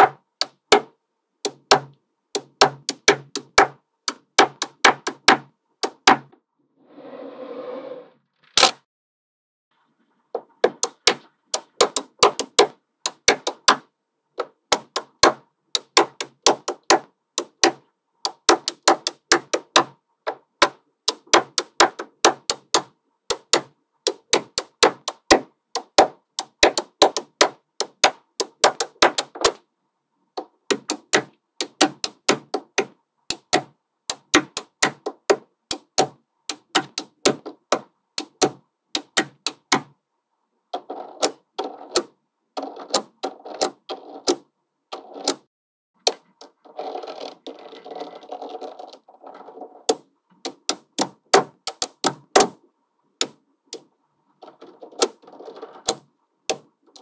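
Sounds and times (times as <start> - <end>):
magnetic balls clicking: 0.0 - 6.1, 10.4 - 13.8, 14.4 - 20.4, 21.0 - 29.6, 30.4 - 39.9, 46.0 - 52.5, 53.2 - 57.0.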